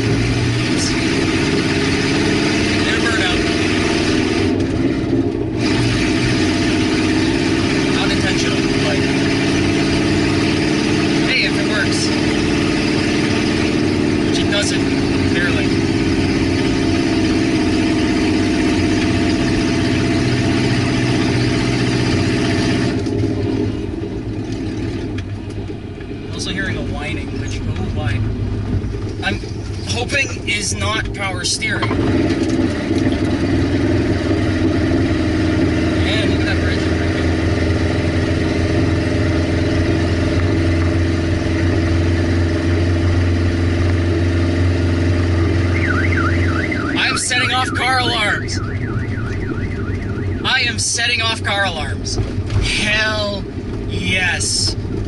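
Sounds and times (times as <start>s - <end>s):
loud rough car engine: 0.0s - 55.0s
car alarm warbling: 45.4s - 52.1s.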